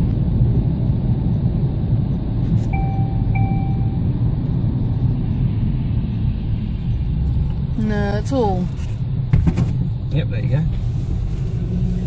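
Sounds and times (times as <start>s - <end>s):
road and engine rumble in car: 0.0s - 12.0s
short electronic chime tones: 2.7s - 4.0s.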